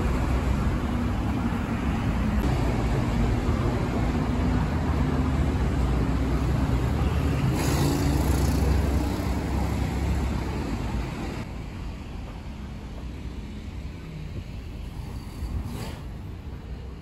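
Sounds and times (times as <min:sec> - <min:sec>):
traffic engine and tyre rumble: 0:00.0 - 0:17.0
tyre hiss of passing vehicle: 0:07.0 - 0:11.4, 0:14.8 - 0:16.3.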